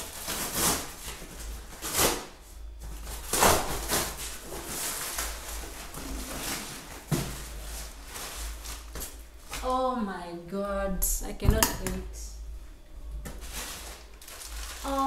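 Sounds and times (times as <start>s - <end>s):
plastic sack rustling: 0.0s - 9.9s, 13.2s - 15.0s.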